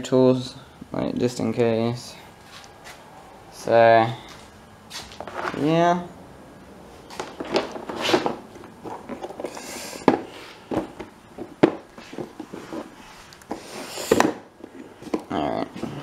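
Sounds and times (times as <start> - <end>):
handling taps and rustling: 4.3 - 5.7, 7.1 - 16.0.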